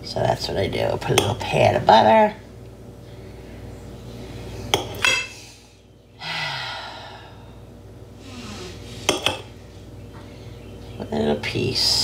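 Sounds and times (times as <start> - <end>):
person sighing: 6.2 - 7.6, 8.2 - 8.9.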